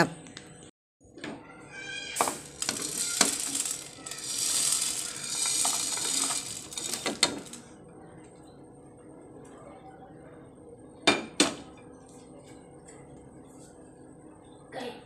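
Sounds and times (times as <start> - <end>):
dry spices rattling into pan: 2.2 - 7.6.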